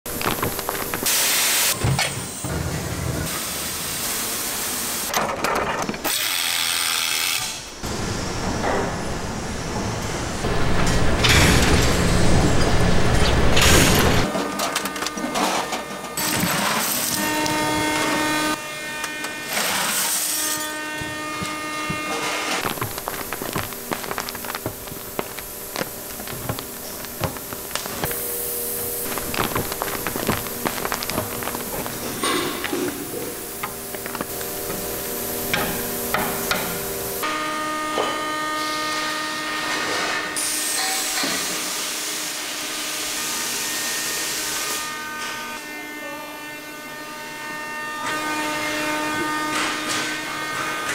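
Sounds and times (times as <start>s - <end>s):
molten metal crackling: 0.0s - 1.8s, 20.8s - 36.1s
furnace hissing: 0.0s - 5.2s, 6.0s - 50.9s
machine running: 7.8s - 37.3s.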